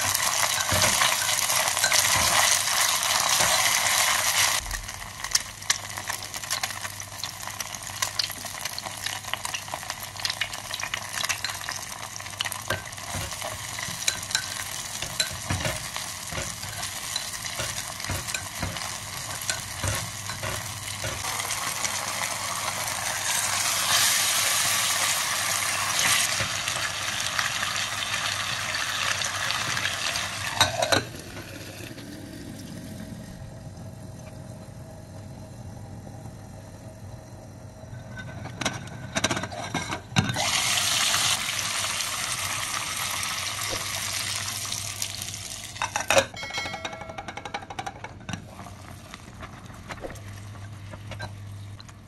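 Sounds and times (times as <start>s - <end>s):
fish sizzling in hot oil: 0.0s - 30.8s, 40.4s - 45.9s
clinks: 45.8s - 48.4s.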